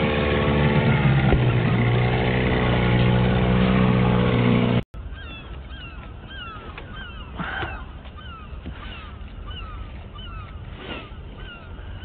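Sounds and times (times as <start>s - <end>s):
outboard motor running: 0.0s - 4.8s
bird calling: 5.0s - 12.0s.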